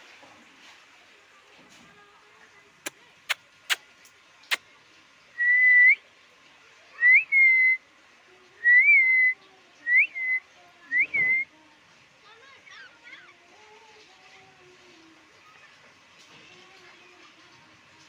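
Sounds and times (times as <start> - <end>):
short whistled notes: 7.0 - 7.8, 11.0 - 11.5.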